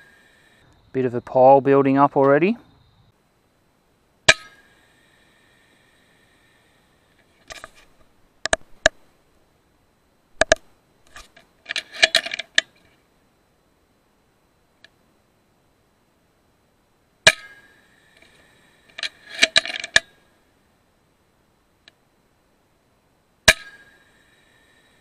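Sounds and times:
metallic clicks of rifle action: 0:07.2 - 0:09.0, 0:10.4 - 0:12.9, 0:18.2 - 0:20.1
air rifle shot: 0:23.5 - 0:24.0.

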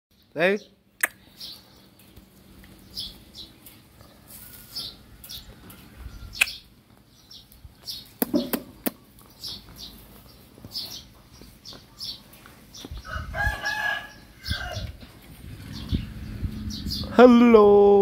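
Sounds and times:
high bird chirps: 0:14.4 - 0:17.2.

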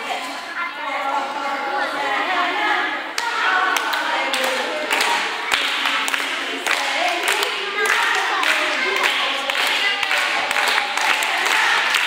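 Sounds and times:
children and adults singing: 0:00.0 - 0:12.0
hand claps: 0:03.2 - 0:12.0.

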